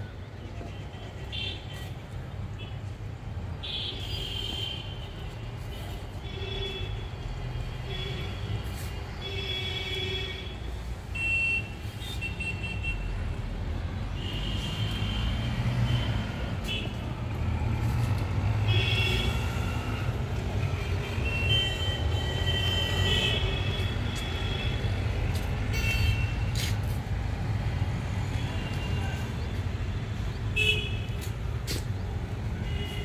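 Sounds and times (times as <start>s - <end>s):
distant traffic rumble: 11.8s - 33.0s
vehicle horns tooting: 18.6s - 26.6s.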